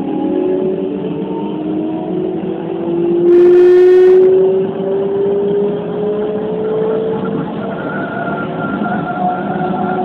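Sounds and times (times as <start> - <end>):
train horn blast: 3.3 - 4.4.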